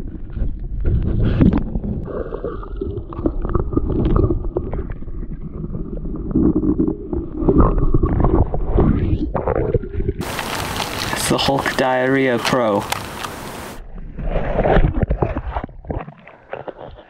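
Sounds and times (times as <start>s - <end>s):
muffled underwater noise: 10.2s - 13.8s
underwater knocks and handling: 14.7s - 17.0s.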